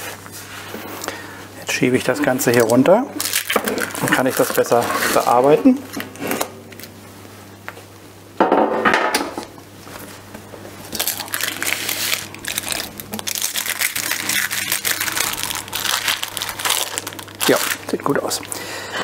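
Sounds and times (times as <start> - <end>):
baking paper rustling: 1.9 - 6.9, 9.8 - 18.6.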